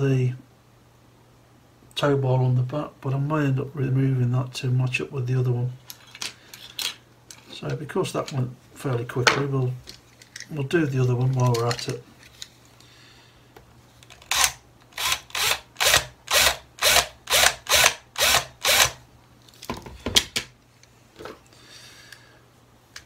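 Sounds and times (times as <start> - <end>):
small parts clicking: 9.8 - 10.5.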